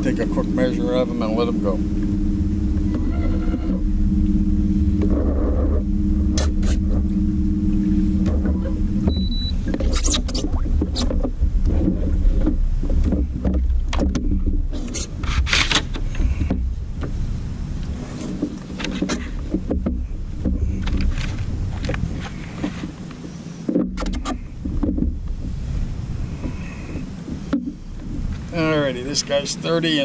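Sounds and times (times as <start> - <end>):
steady low rumble: 0.0 - 30.0
gear clattering on plastic kayak: 9.6 - 17.2, 17.8 - 29.4.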